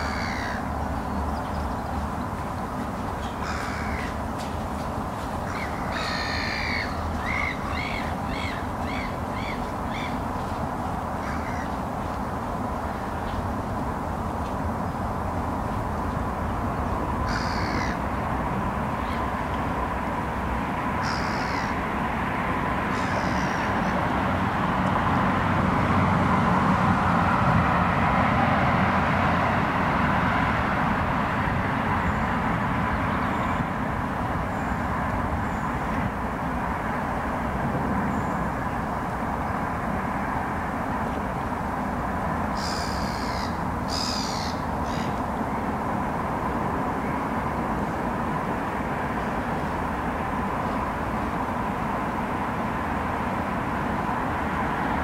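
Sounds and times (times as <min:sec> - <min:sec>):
harsh bird calls: 0:00.0 - 0:04.6, 0:05.4 - 0:10.4, 0:11.2 - 0:11.8, 0:17.2 - 0:18.0, 0:21.0 - 0:21.8, 0:22.9 - 0:24.0, 0:42.6 - 0:45.2
outdoor background rumble: 0:00.0 - 0:55.0.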